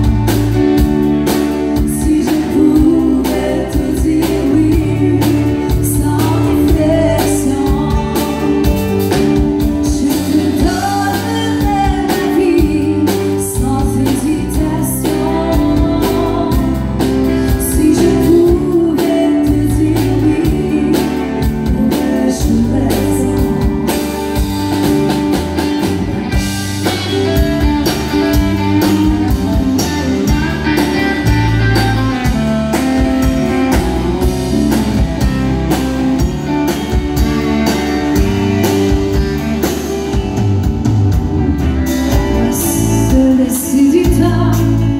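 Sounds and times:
band playing country music: 0.0s - 44.9s
woman singing: 1.8s - 24.1s, 34.1s - 35.5s, 42.1s - 44.9s.

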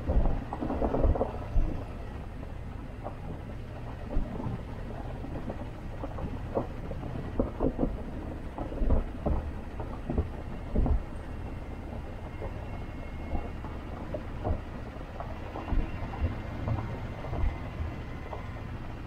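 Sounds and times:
vehicle engine rumble: 0.0s - 19.0s
vehicle body knocks and thumps: 3.0s - 11.4s.

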